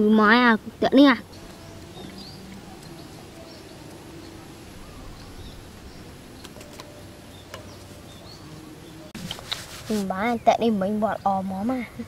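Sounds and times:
outdoor background noise: 0:00.0 - 0:12.0
faint bird chirps: 0:01.2 - 0:09.1.

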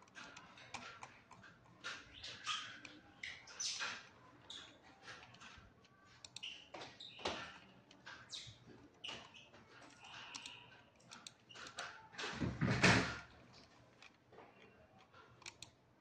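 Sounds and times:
computer mouse clicks: 0:06.2 - 0:06.9, 0:09.1 - 0:11.9, 0:15.0 - 0:15.8.

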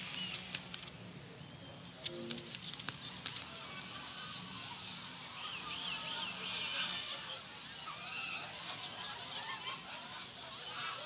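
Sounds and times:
light clicks: 0:00.0 - 0:01.0, 0:02.0 - 0:03.5.

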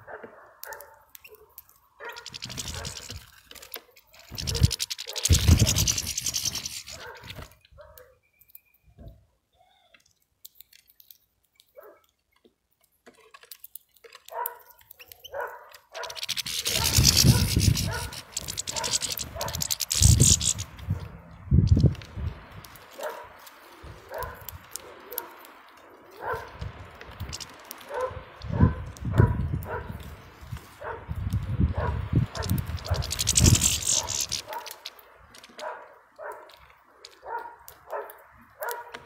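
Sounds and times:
bird wings fluttering: 0:02.0 - 0:07.6, 0:16.0 - 0:24.9, 0:25.8 - 0:28.5, 0:32.2 - 0:35.6
bird calls: 0:03.9 - 0:10.1, 0:16.0 - 0:21.4, 0:32.8 - 0:35.0.

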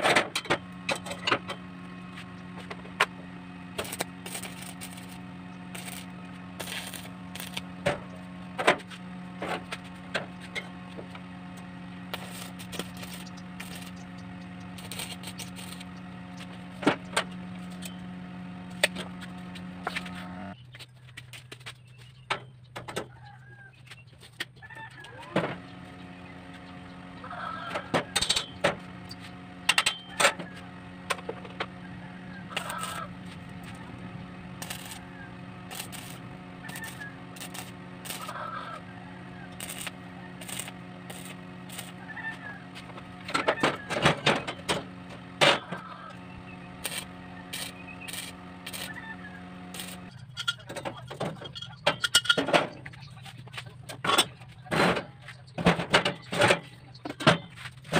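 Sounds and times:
welding machine humming: 0:00.0 - 0:21.7, 0:25.0 - 0:53.6
sharp clicks and crackles: 0:02.3 - 0:18.0, 0:32.5 - 0:46.2, 0:46.8 - 0:57.9.

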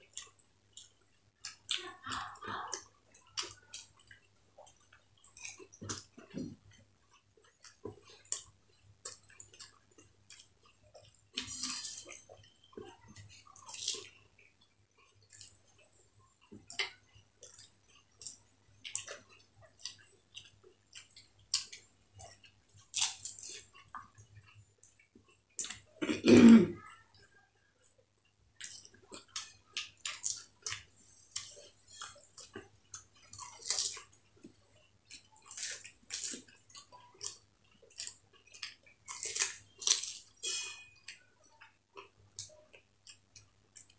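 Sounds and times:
wet chewing: 0:27.8 - 0:43.9.

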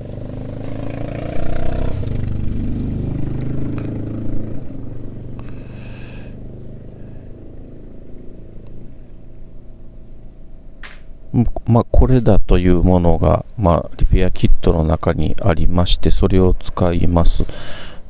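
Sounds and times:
vehicle engine running: 0:00.0 - 0:11.3.

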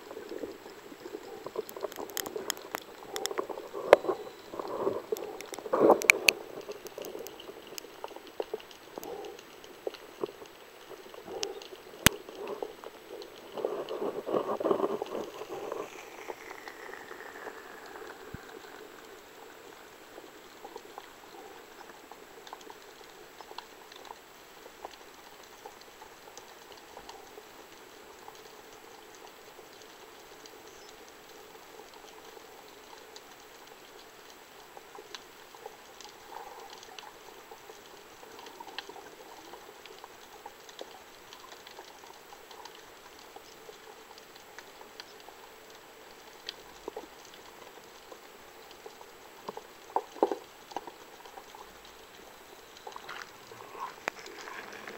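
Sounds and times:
faint underwater crackle: 0:00.0 - 0:54.9
small clicks: 0:01.5 - 0:17.3.

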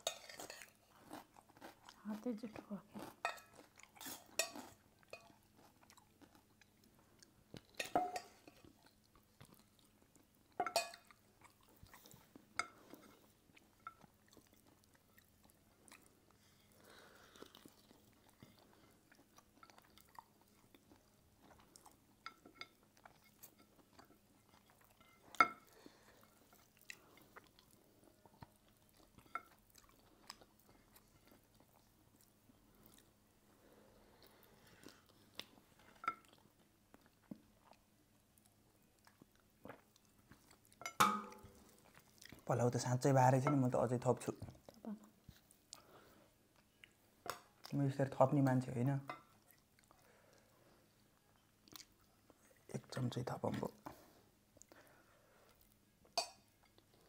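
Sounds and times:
people chewing: 0:00.0 - 0:48.0, 0:49.1 - 0:53.0, 0:53.6 - 0:57.0
spoon clinking on dishes: 0:04.4 - 0:05.3, 0:07.8 - 0:08.6, 0:10.6 - 0:11.1, 0:40.8 - 0:41.5, 0:56.2 - 0:56.5.

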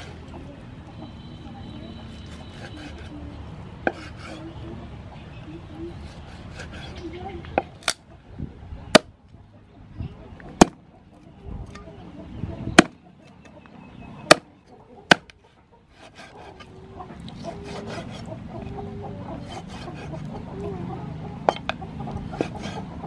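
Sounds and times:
cleaver chopping on wooden block: 0:03.8 - 0:04.4, 0:10.6 - 0:10.8, 0:12.8 - 0:13.0, 0:14.3 - 0:14.5, 0:15.1 - 0:15.4, 0:21.5 - 0:22.8
knife taps and scrapes: 0:03.8 - 0:04.4.

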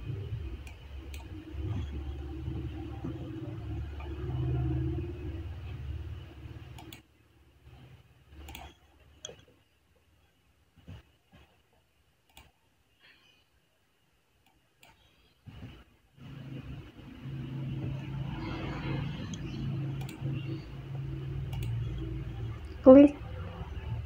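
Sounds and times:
low hum with faint buzz: 0:00.0 - 0:24.0
computer mouse clicks: 0:00.6 - 0:02.3, 0:06.6 - 0:07.1, 0:07.7 - 0:09.5, 0:12.2 - 0:12.6, 0:14.4 - 0:16.8, 0:19.1 - 0:20.6, 0:21.4 - 0:22.2.

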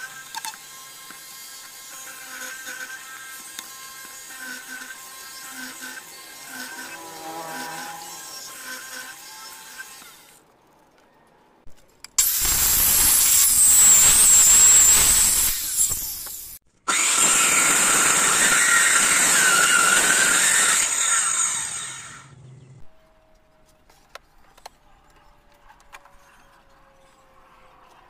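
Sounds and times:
circular saw cutting wood: 0:00.0 - 0:10.5, 0:12.2 - 0:22.4.

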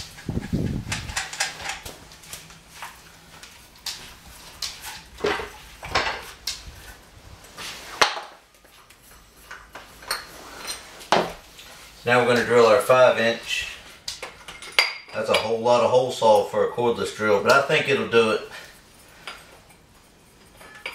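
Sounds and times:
metal tool parts clinking: 0:20.4 - 0:20.9.

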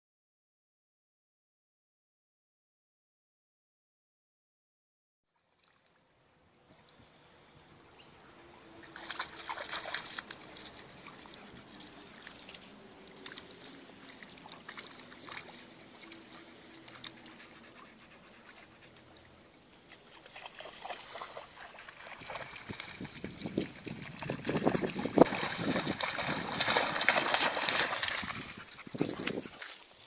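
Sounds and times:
dog splashing in water: 0:08.8 - 0:17.6, 0:19.8 - 0:30.0
dog panting: 0:15.4 - 0:19.4, 0:28.3 - 0:29.6.

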